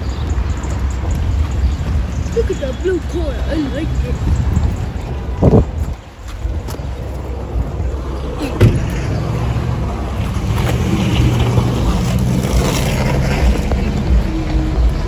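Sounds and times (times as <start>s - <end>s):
vehicle engine humming: 0.0s - 15.0s
thump: 8.6s - 9.0s.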